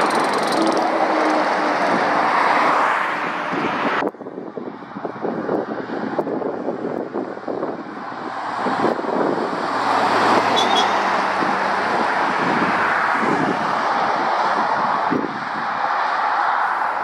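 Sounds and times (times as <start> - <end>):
car passing: 0.0 - 4.0, 7.6 - 17.0.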